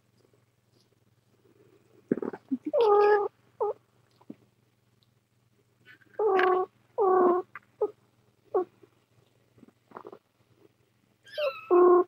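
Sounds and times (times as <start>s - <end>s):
cat chirping: 2.1s - 3.8s, 11.3s - 12.0s.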